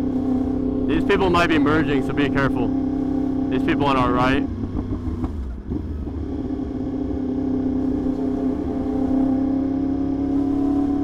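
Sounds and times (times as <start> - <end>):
motorcycle engine cruising: 0.0 - 11.0
wind and road rumble: 0.0 - 11.0.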